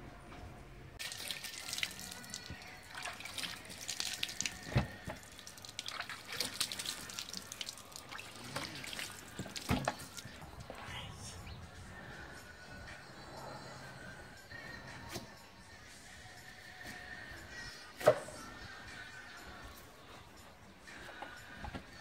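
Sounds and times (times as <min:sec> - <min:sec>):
water splashing and dripping: 0:01.0 - 0:10.7.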